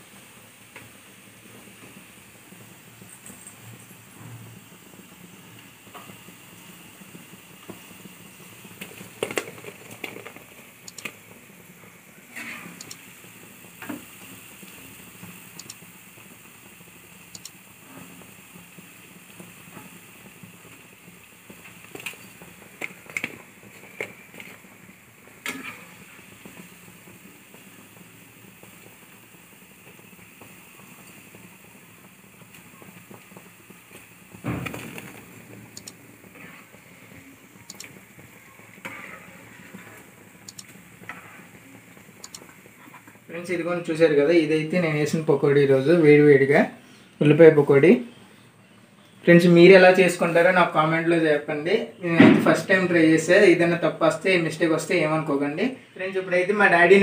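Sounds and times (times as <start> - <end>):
food sizzling in hot oil: 0.0 - 57.0
steel ladle scraping pan: 38.8 - 40.0.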